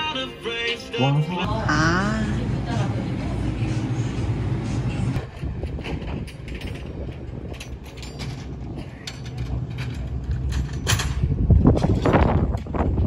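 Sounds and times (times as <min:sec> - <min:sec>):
steady low hum: 0:01.4 - 0:06.3
deck machinery clicking and creaking: 0:05.2 - 0:13.0.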